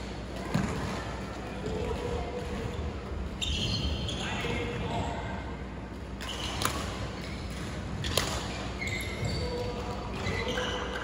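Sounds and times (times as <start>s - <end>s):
racket hitting shuttlecock: 8.0s - 8.6s.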